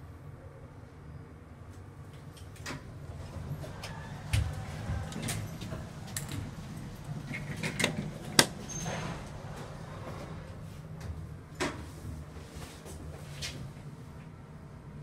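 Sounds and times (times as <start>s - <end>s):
elevator doors sliding: 2.4s - 13.8s.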